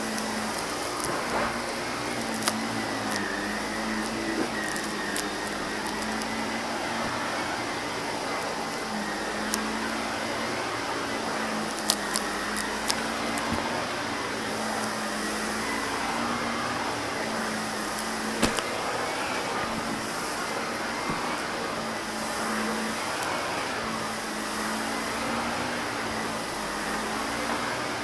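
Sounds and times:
debris clicking in vacuum: 0.0 - 7.5, 11.5 - 13.8, 17.8 - 21.4
upright vacuum cleaner running: 0.0 - 28.0.

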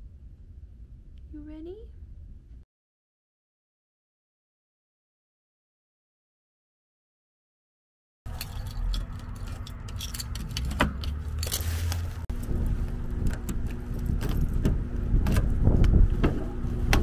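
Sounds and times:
key turning in a lock: 8.3 - 11.6
lock and latch clicks: 8.3 - 11.6
keys jangling: 8.3 - 11.8.

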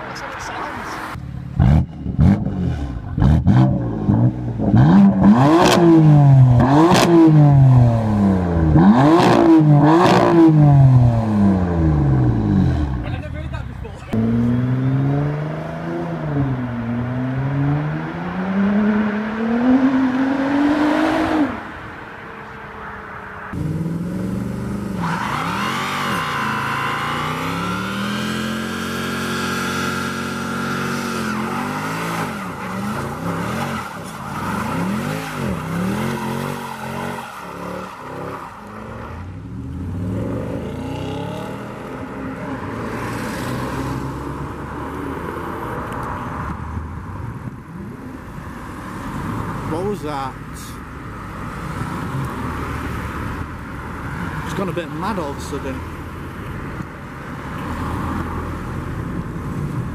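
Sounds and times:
car engine revving: 0.0 - 13.5, 14.1 - 21.8, 22.4 - 46.1.

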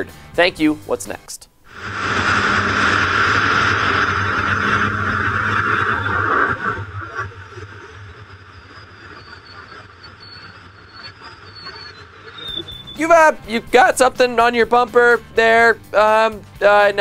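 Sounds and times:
loud wind rush: 1.7 - 13.4
motorcycle engine hum: 1.7 - 13.6.

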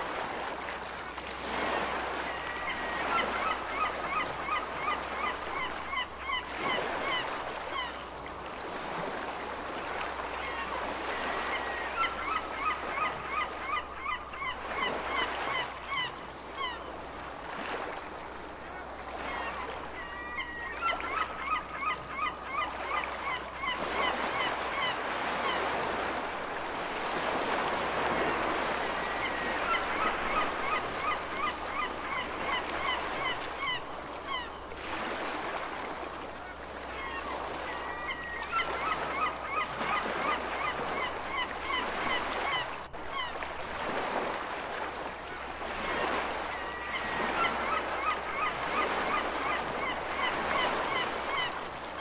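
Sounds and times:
ocean waves washing: 0.0 - 52.0
seagulls calling: 1.6 - 8.1, 10.3 - 17.9, 18.6 - 26.2, 27.0 - 44.3, 45.2 - 52.0.

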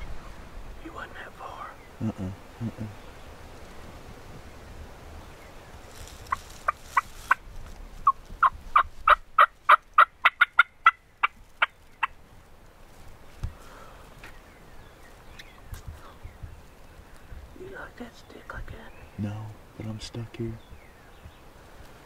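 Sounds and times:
turkey yelping: 8.0 - 12.2.

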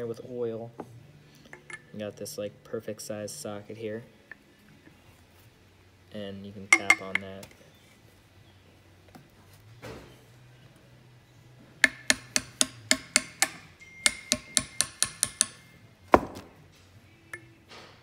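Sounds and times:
hammer tapping on metal socket: 6.7 - 7.3, 11.8 - 15.6.

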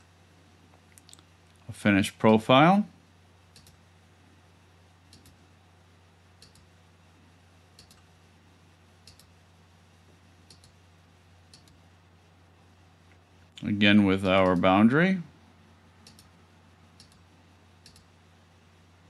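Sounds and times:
low steady hum: 0.0 - 19.0
computer mouse clicks: 3.5 - 3.8, 5.1 - 5.4, 6.4 - 6.7, 7.8 - 8.1, 9.0 - 9.3, 10.4 - 10.8, 11.5 - 11.8, 16.0 - 16.4, 17.0 - 18.1.

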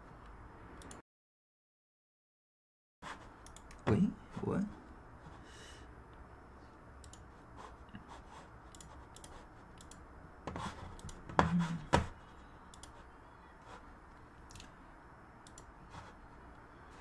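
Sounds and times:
computer clicks and taps: 3.4 - 4.0, 8.7 - 13.0, 14.4 - 14.8, 15.4 - 15.7.

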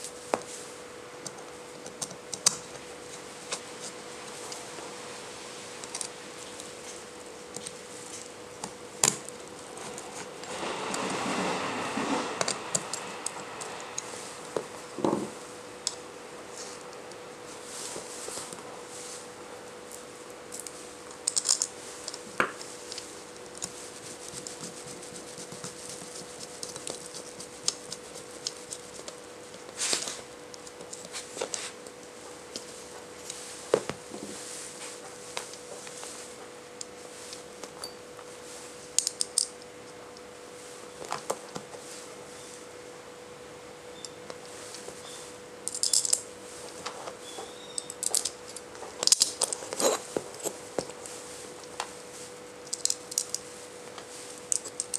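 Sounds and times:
faint steady hum: 0.0 - 54.9
metal parts clicking and clinking: 21.2 - 22.2, 45.6 - 46.2, 47.7 - 50.0, 52.6 - 53.4.

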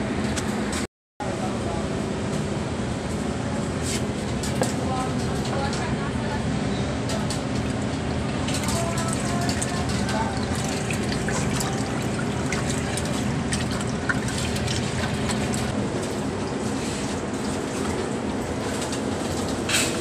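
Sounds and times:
water running: 7.3 - 16.2.

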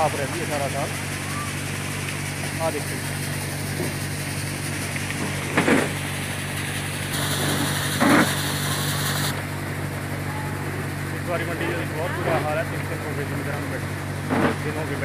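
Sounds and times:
machine humming: 0.0 - 15.0
high hiss: 6.0 - 9.4.

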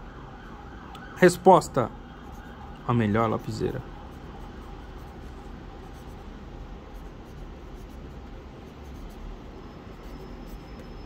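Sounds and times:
pencil scratching on paper: 3.3 - 11.0.

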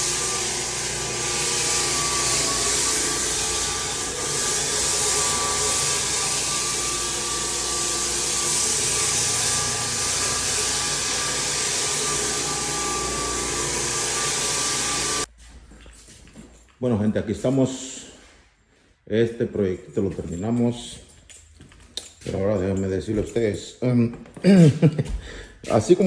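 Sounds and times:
floor sander running: 0.0 - 15.3.

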